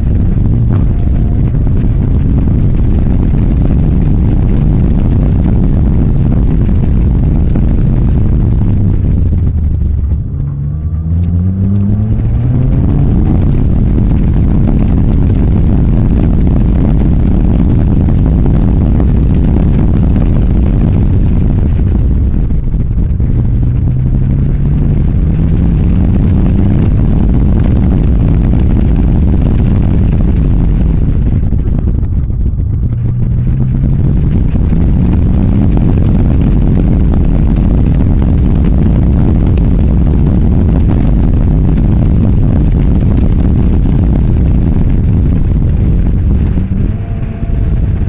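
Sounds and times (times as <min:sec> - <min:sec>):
car engine accelerating: 0:00.0 - 0:48.0
wind buffeting microphone: 0:00.0 - 0:48.0.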